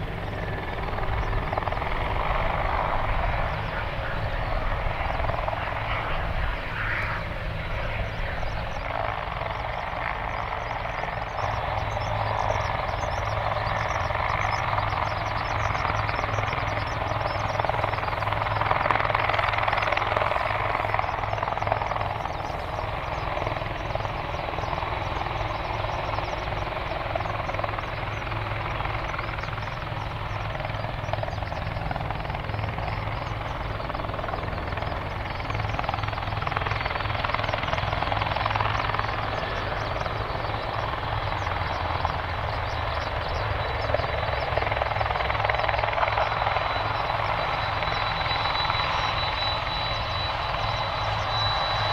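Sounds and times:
faint high whine: 0.0 - 51.9
jet engines droning: 0.0 - 51.9.

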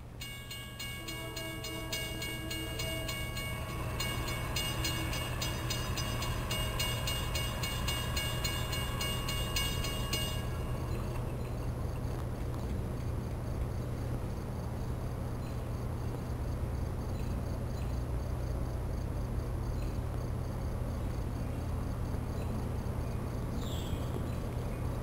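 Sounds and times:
railroad warning bell ringing: 0.0 - 11.8
approaching train rumble: 0.0 - 25.0.

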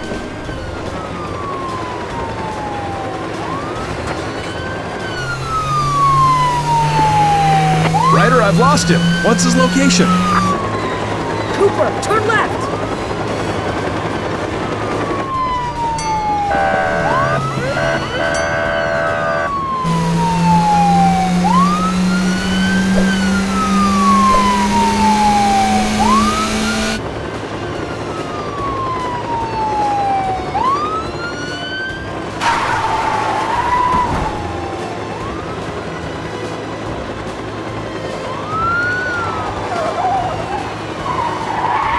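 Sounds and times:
police siren wailing: 0.0 - 41.9
car engine accelerating: 5.2 - 10.8, 16.4 - 27.0.

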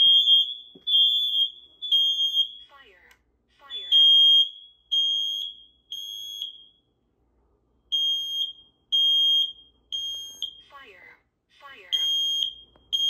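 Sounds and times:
smoke alarm beeping: 0.0 - 2.8, 3.6 - 7.0, 7.9 - 10.8, 11.9 - 13.0.

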